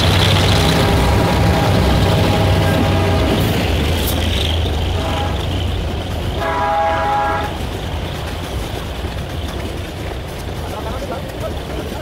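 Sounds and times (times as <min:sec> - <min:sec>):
freight train rumbling past: 0:00.0 - 0:12.0
train horn: 0:00.3 - 0:03.8, 0:04.9 - 0:05.6, 0:06.4 - 0:07.7.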